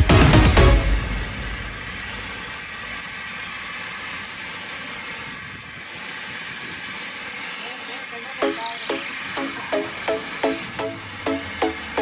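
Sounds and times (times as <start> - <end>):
music: 0.0 - 1.7, 8.4 - 12.0
wood lathe running: 0.0 - 12.0
chisel cutting wood: 0.6 - 12.0.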